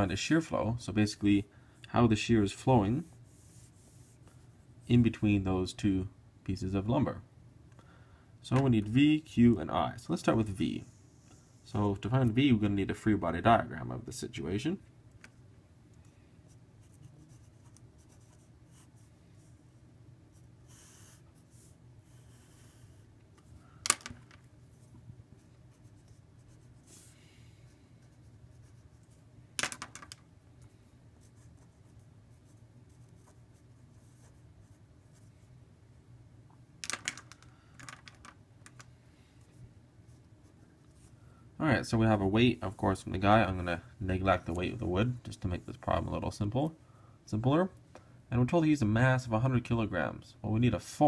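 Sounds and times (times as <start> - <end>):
faint low hum: 0.0 - 51.0
marker scratching on paper: 16.8 - 19.5, 20.3 - 23.0.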